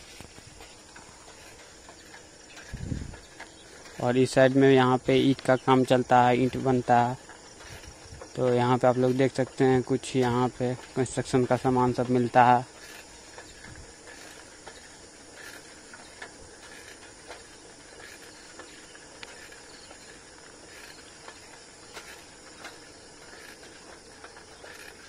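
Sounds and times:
bicycle tyres rolling on road: 0.0 - 25.0
light clicks and rattles: 0.0 - 25.0
wind on microphone: 2.7 - 3.3.

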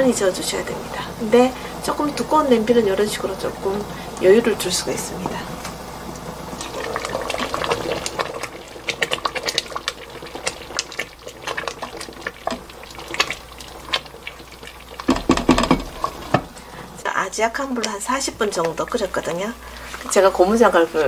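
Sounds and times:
jam bubbling and popping: 5.2 - 20.8.

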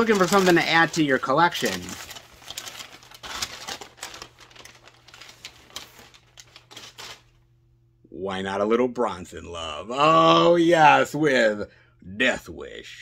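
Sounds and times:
packaging crinkling: 0.0 - 7.4.

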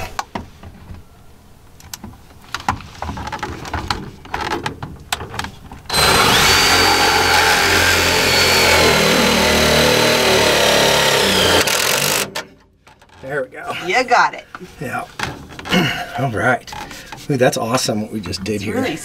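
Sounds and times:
cordless drill whining under load: 5.9 - 12.4.

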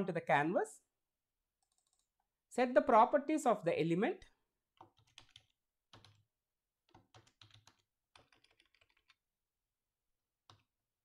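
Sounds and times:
faint keyboard typing: 1.6 - 2.4, 4.7 - 9.3, 10.4 - 10.8.

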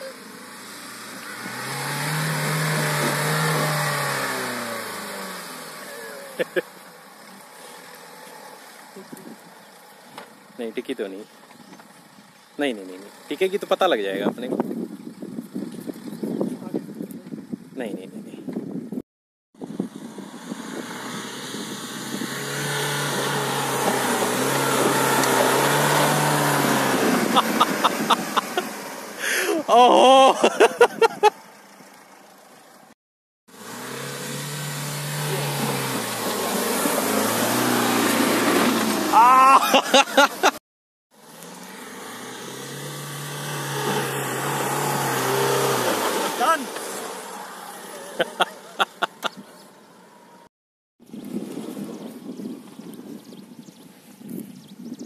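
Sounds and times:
car engine revving under load: 0.0 - 10.6, 19.7 - 29.7, 33.5 - 40.6, 41.2 - 50.4
spinning tyres spraying sand: 0.0 - 14.2, 20.0 - 32.8, 33.5 - 49.4
car engine running at low revs: 19.6 - 29.2, 33.6 - 39.2.

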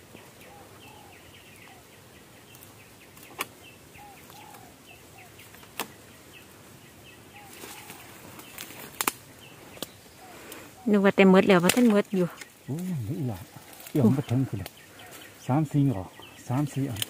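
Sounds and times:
birds chirping: 0.0 - 17.0
dry bamboo snapping: 2.5 - 3.6, 5.4 - 6.0, 7.5 - 9.2, 9.8 - 10.6, 11.4 - 12.9, 13.6 - 15.2, 16.7 - 17.0.

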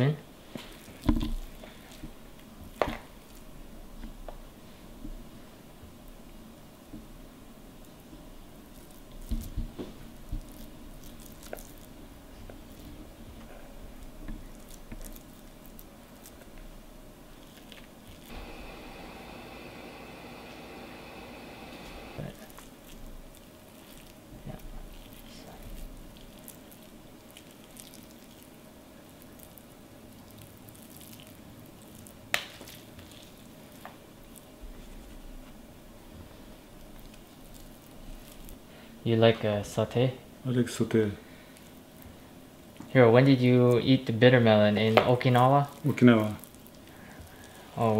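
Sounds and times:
soft squishing of meat filling: 0.4 - 6.3, 7.0 - 47.9
filling squishing by hand: 10.2 - 16.6, 21.9 - 35.0.

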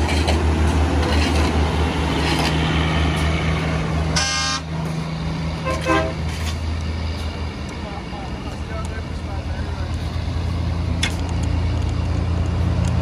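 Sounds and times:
truck engine droning: 0.0 - 13.0
horn toot: 4.1 - 4.7, 5.6 - 6.2.

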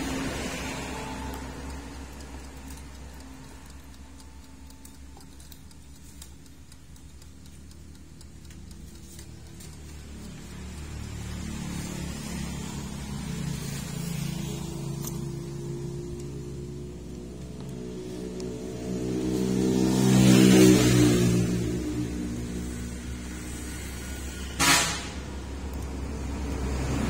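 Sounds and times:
sustained low tones: 12.1 - 24.0.

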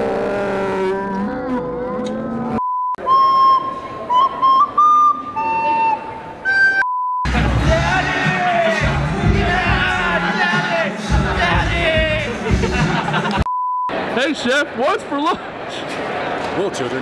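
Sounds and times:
electronic beep tone: 2.6 - 4.3
shrill recorder notes: 3.0 - 6.9.

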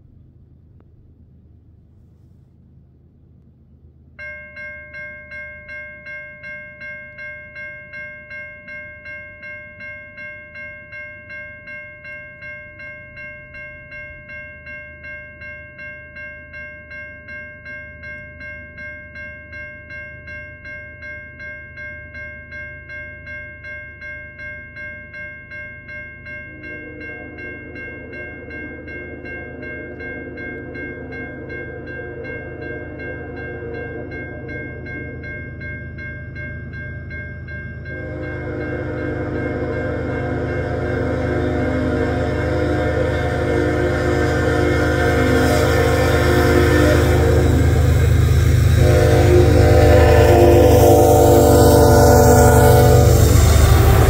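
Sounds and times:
crossing warning bell ringing: 4.2 - 54.0
locomotive air horn: 37.9 - 54.0.

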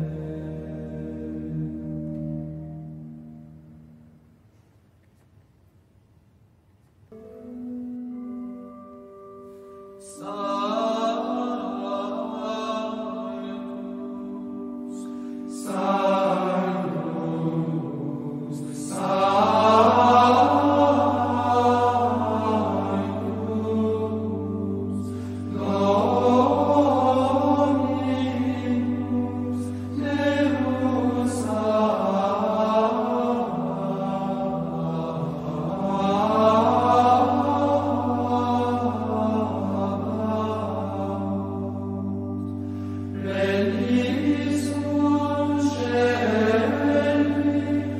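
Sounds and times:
low drone: 7.1 - 47.9
voices chanting: 15.6 - 42.2, 43.2 - 47.9.

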